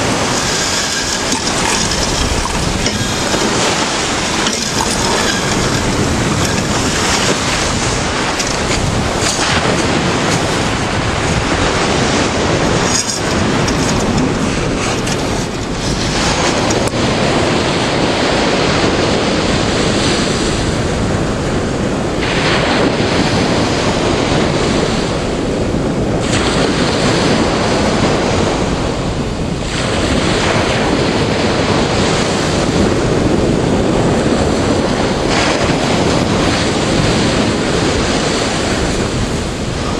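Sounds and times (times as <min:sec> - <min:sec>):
sea surf breaking: 0:00.0 - 0:19.1.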